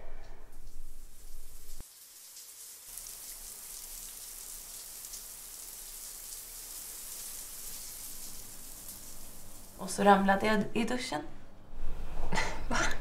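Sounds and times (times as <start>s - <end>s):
shower water spray hissing: 0.5s - 10.0s.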